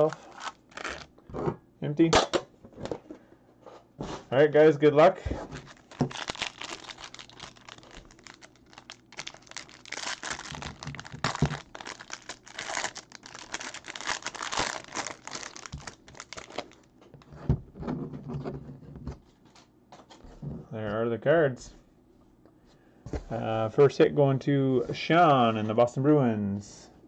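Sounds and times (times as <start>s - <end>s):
foil wrapper crinkling and tearing: 0.0s - 1.1s, 5.6s - 16.9s.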